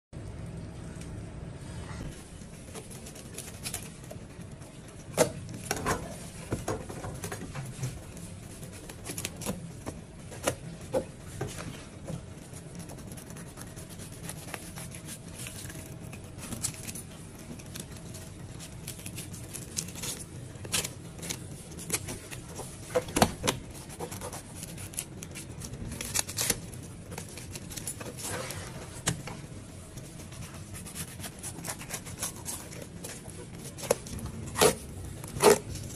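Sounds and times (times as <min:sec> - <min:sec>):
steady low hum: 0:00.2 - 0:35.9
knife scraping fish scales: 0:30.1 - 0:35.9.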